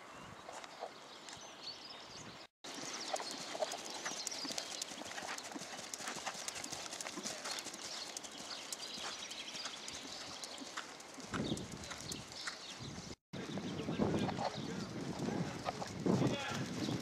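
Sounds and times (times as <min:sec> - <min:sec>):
horse hoofbeats on sand: 0:02.7 - 0:13.2.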